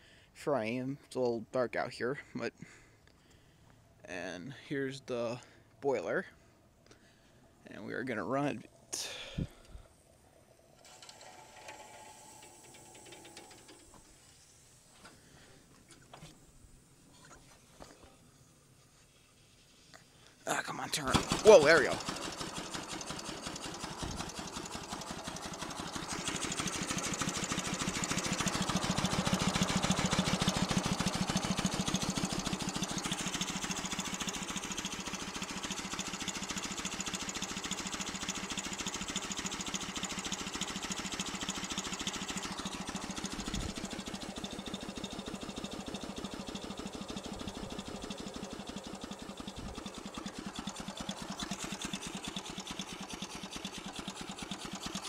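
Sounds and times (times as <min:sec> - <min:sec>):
steam engine exhaust chuffing: 0:21.0 - 0:55.0.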